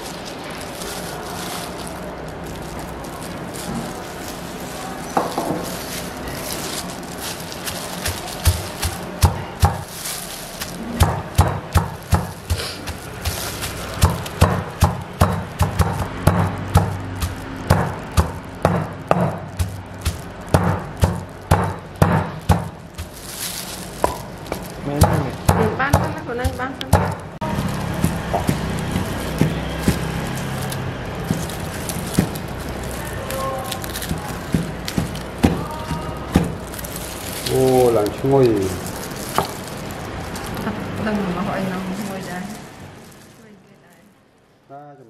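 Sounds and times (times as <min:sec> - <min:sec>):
wooden pestle pounding in mortar: 0:07.3 - 0:39.7.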